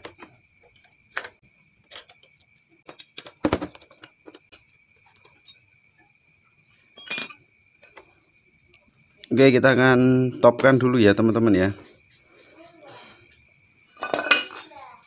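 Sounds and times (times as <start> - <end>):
metal tools clinking: 0.0 - 4.1, 7.0 - 8.0, 14.0 - 14.8
sharp ringing metal clink: 7.0 - 7.4.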